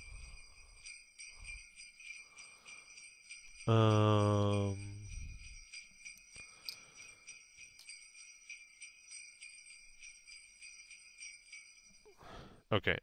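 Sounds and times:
jingle bells shaken: 0.0s - 12.2s.

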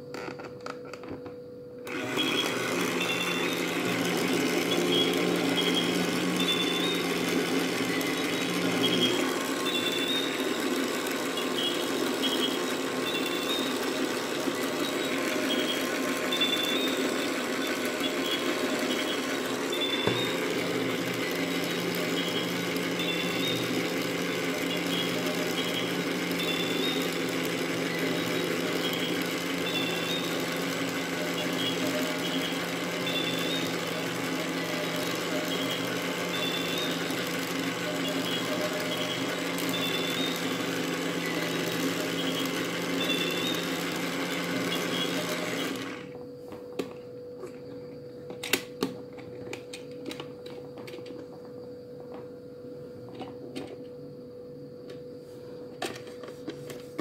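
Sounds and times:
toy washing machine motor running: 1.8s - 46.2s.

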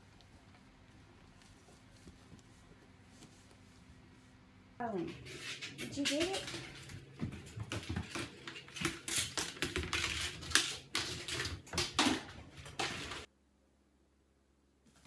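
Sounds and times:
plastic basket clattering on tile: 5.5s - 13.3s.

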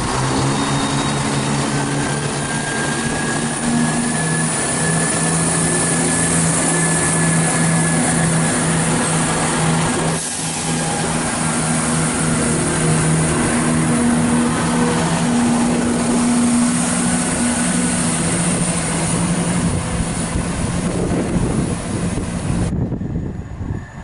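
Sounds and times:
diesel engine drone: 0.0s - 23.7s
train wheel and rail noise: 0.0s - 24.0s.

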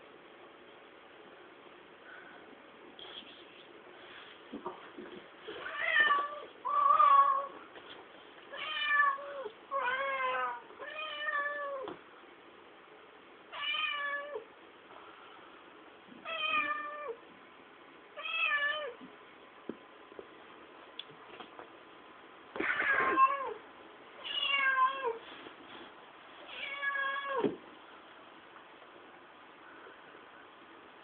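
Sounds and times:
cat meowing: 24.2s - 25.2s, 26.5s - 27.5s.

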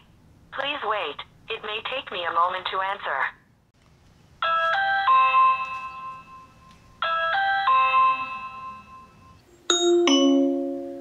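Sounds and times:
doorbell chime tune: 4.4s - 11.0s
bright chime: 4.6s - 11.0s.

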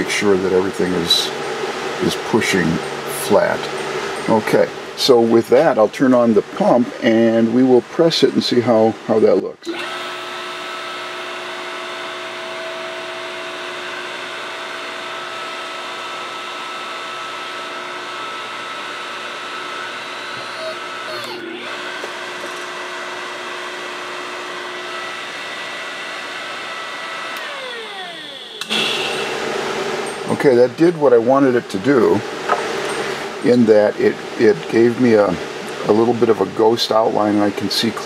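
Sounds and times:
hydraulic pump whining: 8.8s - 36.4s.

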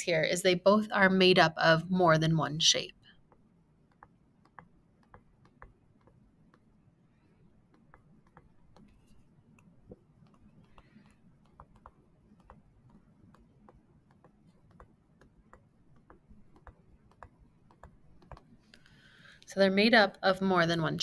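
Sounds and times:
stylus tapping on tablet screen: 3.0s - 19.1s.

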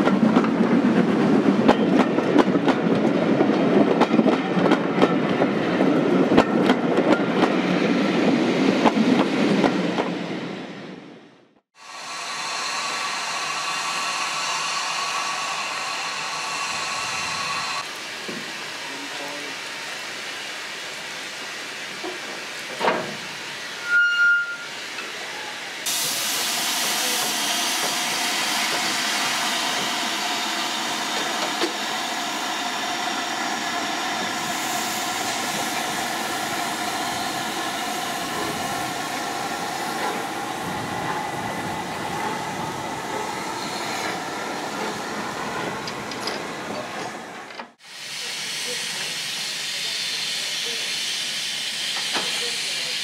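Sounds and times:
steam locomotive hissing: 11.8s - 53.0s.

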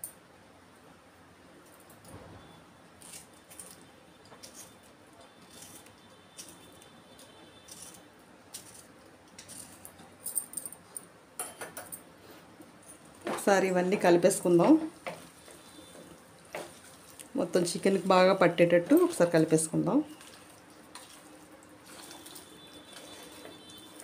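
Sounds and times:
bangles clinking: 8.6s - 12.1s.

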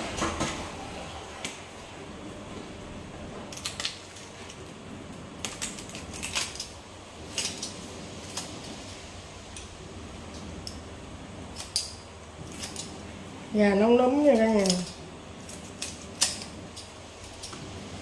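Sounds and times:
steady low background noise: 0.0s - 18.0s.

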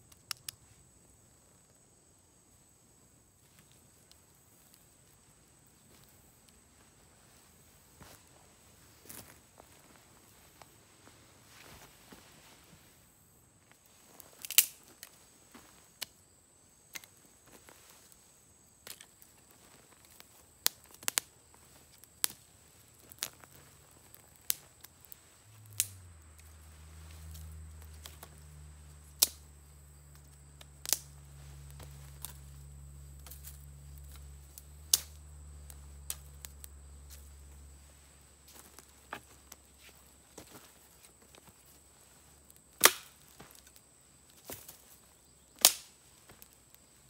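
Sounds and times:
campfire crackling and popping: 0.0s - 0.6s, 14.3s - 15.2s, 18.8s - 40.6s, 41.4s - 44.3s, 45.5s - 46.8s.

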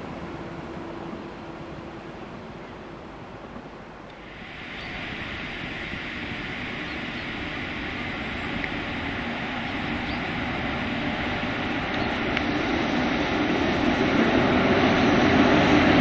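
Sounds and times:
locomotive running drone: 4.2s - 16.0s.

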